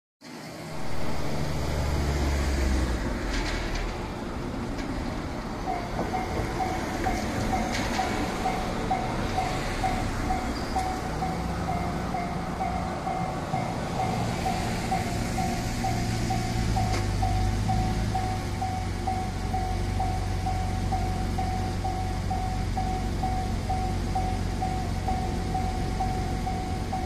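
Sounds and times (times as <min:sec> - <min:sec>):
road traffic: 0:00.2 - 0:27.0
level crossing warning bell: 0:05.6 - 0:27.0.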